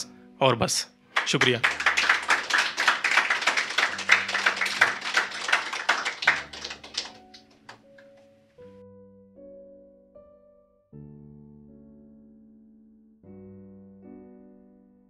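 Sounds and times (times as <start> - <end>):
soft background music: 0.0 - 15.0
audience applauding: 1.2 - 7.9.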